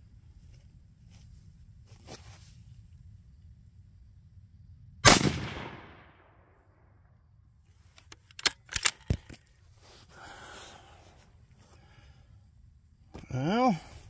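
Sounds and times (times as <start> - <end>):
rifle shot: 5.0 - 6.6.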